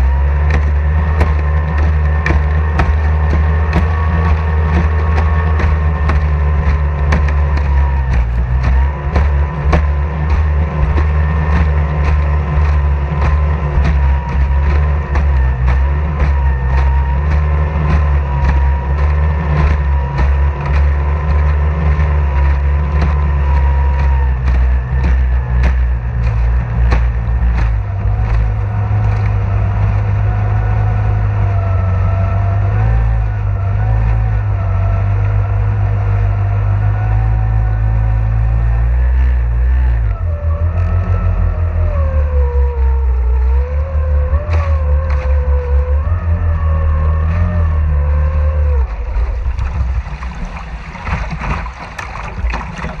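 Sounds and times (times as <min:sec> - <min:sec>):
sharp knocks: 0:00.0 - 0:31.6, 0:49.1 - 0:53.0
outboard motor rumbling: 0:00.0 - 0:53.0
wavering whine: 0:00.0 - 0:53.0.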